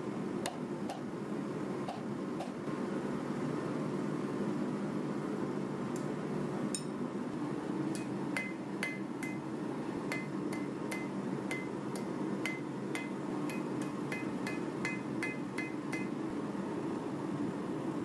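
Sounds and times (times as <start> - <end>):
steady low hum: 0.0 - 18.0
hammer blows on anvil ringing: 8.0 - 9.4, 10.1 - 16.2.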